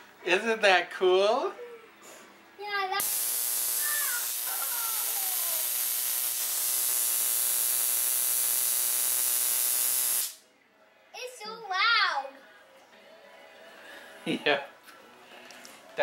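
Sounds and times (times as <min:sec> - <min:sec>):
spark gap arcing buzz: 0:03.0 - 0:10.4.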